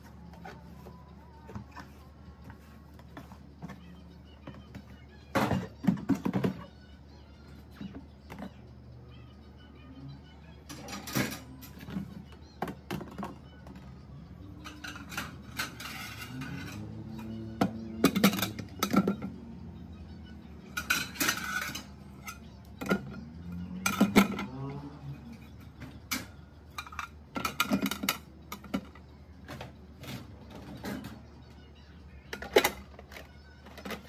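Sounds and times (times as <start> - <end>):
dishes clattering in plastic rack: 5.4 - 6.7, 10.7 - 13.4, 14.6 - 16.9, 17.6 - 19.3, 20.7 - 23.2, 23.8 - 24.6, 26.1 - 31.2.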